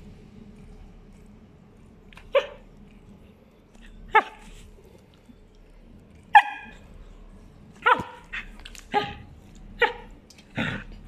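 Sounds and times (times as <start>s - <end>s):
dog barking: 6.3s - 6.8s, 7.8s - 8.2s.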